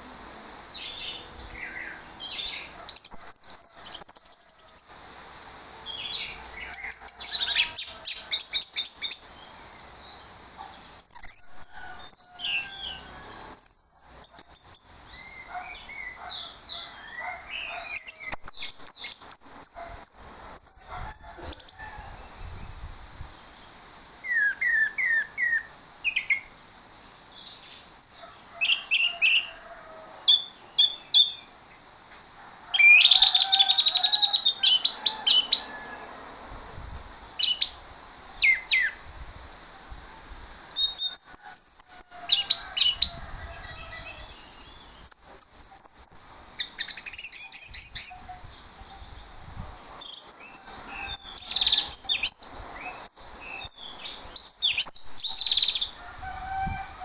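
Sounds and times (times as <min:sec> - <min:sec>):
steady high hiss: 0:00.0 - 0:57.0
thrush singing: 0:05.8 - 0:18.4.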